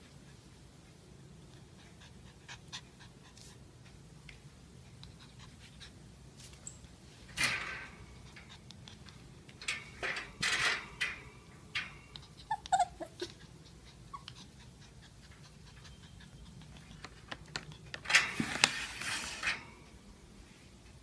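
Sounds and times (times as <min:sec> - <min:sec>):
puppy panting: 0:00.0 - 0:06.1, 0:08.2 - 0:09.4, 0:12.1 - 0:18.0.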